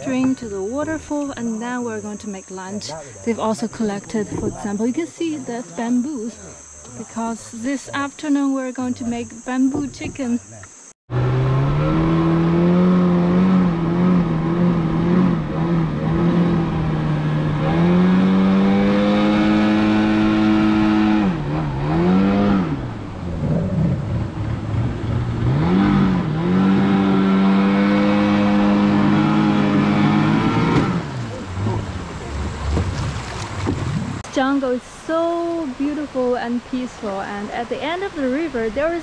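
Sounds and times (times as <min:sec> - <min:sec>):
outboard motor running: 0:00.0 - 0:02.0, 0:02.6 - 0:08.0, 0:11.4 - 0:34.3.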